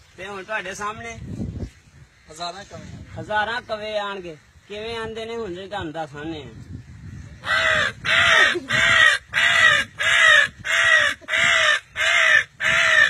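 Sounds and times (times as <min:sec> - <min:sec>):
man imitating crow caws: 0:07.4 - 0:13.0.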